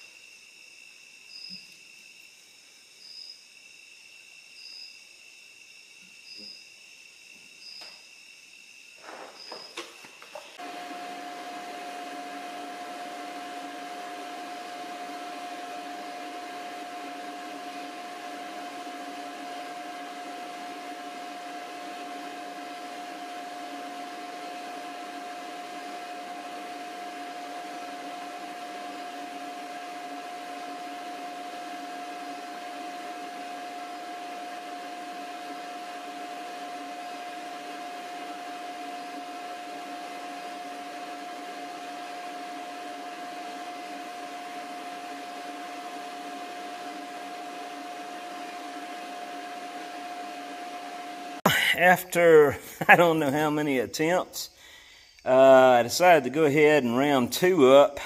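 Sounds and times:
motor whir with high whine: 0:09.0 - 0:51.4.

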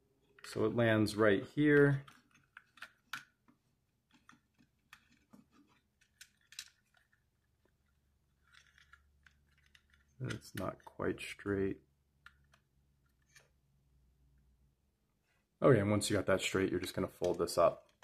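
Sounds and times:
toy parts clicking and rubbing: 0:01.6 - 0:11.5, 0:12.1 - 0:13.6, 0:16.8 - 0:18.0.

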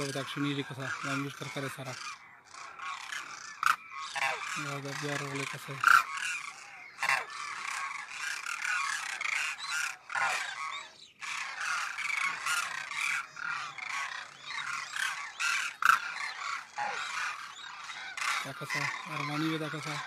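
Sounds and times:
flock of cranes calling: 0:00.0 - 0:20.0.

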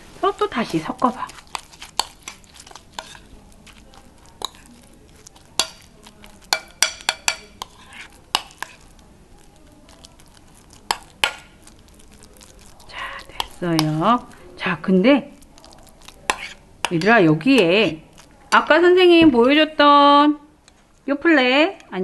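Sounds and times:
metal spoon stirring thick mash: 0:00.2 - 0:19.7
spoon clinking on glass bowl: 0:05.3 - 0:08.8.

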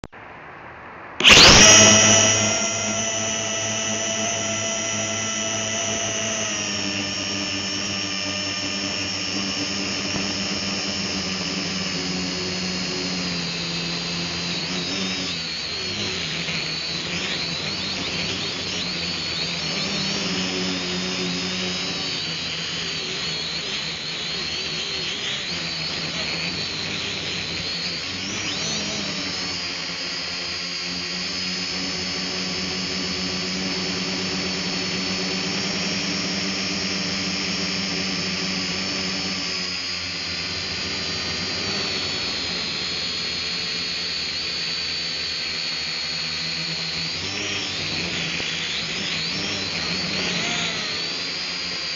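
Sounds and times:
drone propellers whining: 0:00.1 - 0:51.9.

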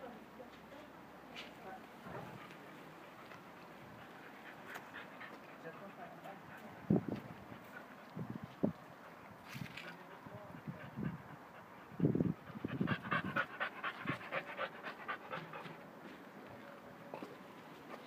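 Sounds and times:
dog panting quickly: 0:02.0 - 0:15.9.

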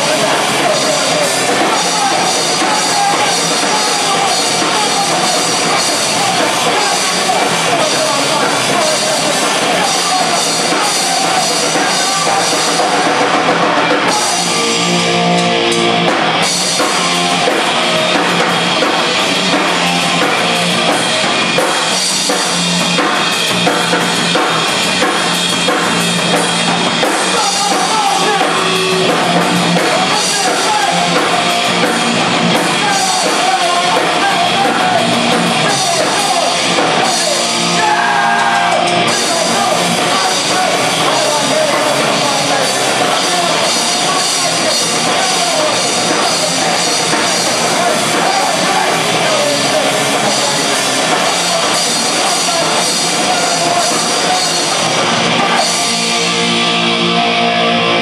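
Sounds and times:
person singing: 0:00.0 - 0:15.9, 0:27.0 - 0:31.6, 0:32.5 - 0:58.0
bass guitar: 0:00.0 - 0:58.0
drum kit: 0:00.0 - 0:58.0
electric guitar: 0:00.0 - 0:58.0.

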